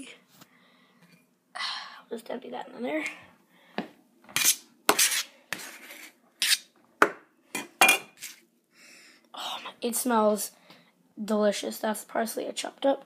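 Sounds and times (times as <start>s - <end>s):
bowl and utensils clattering: 7.6s - 8.4s.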